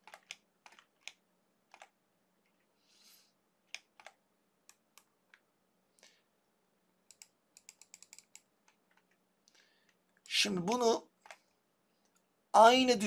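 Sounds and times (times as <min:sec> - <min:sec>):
faint computer mouse clicks: 0:07.1 - 0:10.3.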